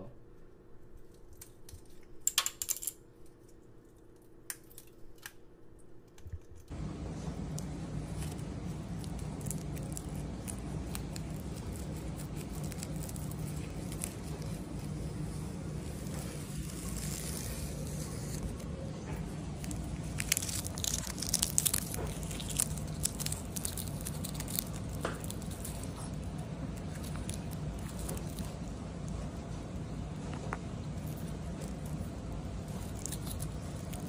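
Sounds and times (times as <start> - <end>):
steady low hum: 6.6 - 34.0
parrot beak crunching plastic: 7.4 - 15.2, 19.4 - 29.1, 30.9 - 34.0.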